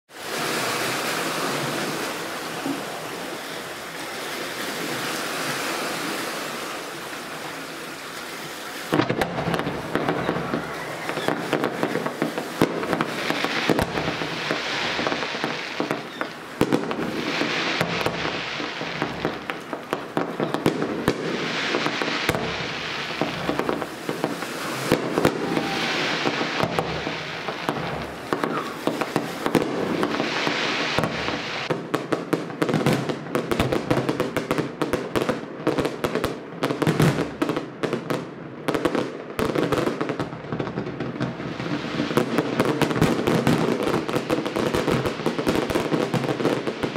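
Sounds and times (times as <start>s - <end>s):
hiss of sparking fountains: 0.1s - 31.8s
fireworks crackling and banging: 0.1s - 46.9s.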